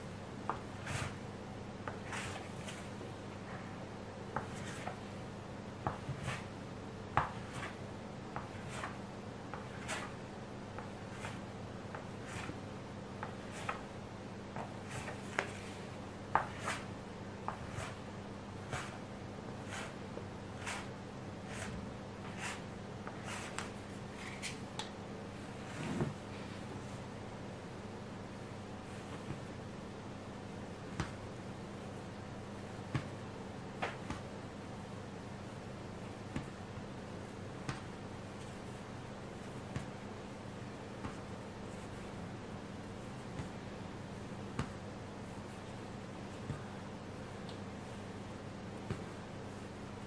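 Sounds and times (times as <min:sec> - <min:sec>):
steady low hum: 0:00.0 - 0:50.0
dough scraper scraping board: 0:00.5 - 0:01.2, 0:01.9 - 0:02.9, 0:05.8 - 0:06.5, 0:07.2 - 0:07.8, 0:08.4 - 0:10.2, 0:10.8 - 0:12.6, 0:14.6 - 0:15.8, 0:16.4 - 0:16.9, 0:17.5 - 0:18.0, 0:18.7 - 0:19.0, 0:19.6 - 0:20.0, 0:20.6 - 0:24.6.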